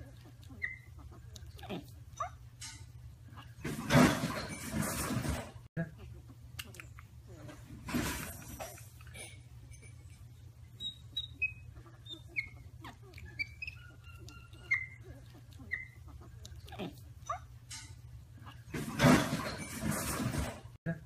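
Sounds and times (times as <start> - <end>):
low steady hum: 0.0 - 21.0
baby monkeys squeaking: 0.1 - 2.4, 10.7 - 18.7.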